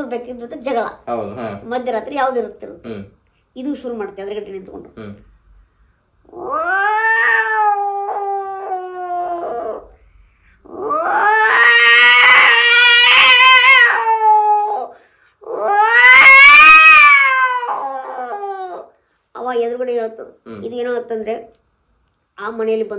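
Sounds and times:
man mimicking cat yowls: 6.3 - 9.9, 10.6 - 18.9.

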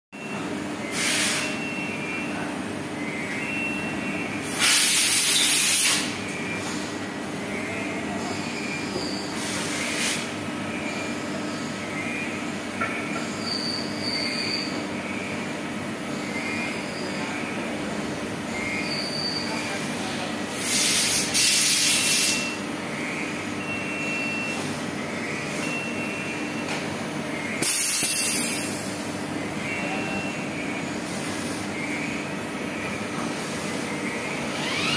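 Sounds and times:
steady machine hum: 0.2 - 20.6, 22.4 - 34.9
loud hissing bursts: 4.5 - 6.1
faint high squeal: 8.2 - 9.4, 13.4 - 14.8.

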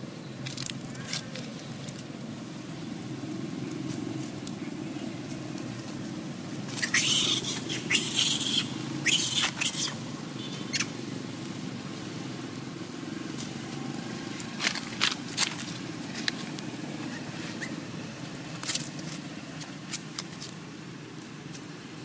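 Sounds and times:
baby monkey squealing: 6.7 - 10.0, 10.6 - 11.0, 17.0 - 17.8.

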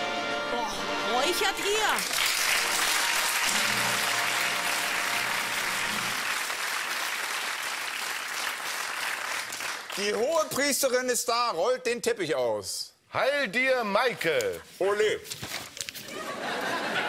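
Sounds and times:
studio audience applauding: 1.6 - 10.5.

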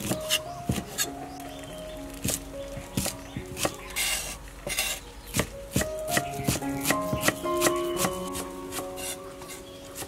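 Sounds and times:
knife chopping on wooden board: 2.2 - 9.2.

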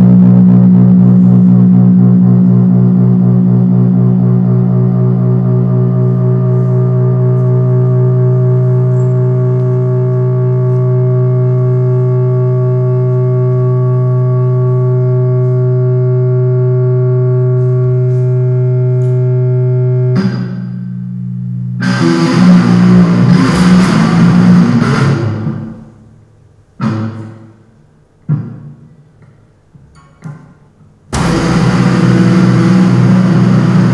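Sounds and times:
distorted noise with drum hits: 0.0 - 13.8, 20.0 - 26.2, 26.8 - 29.3, 30.0 - 33.9
sustained droning chord: 0.0 - 26.3, 31.1 - 33.9.

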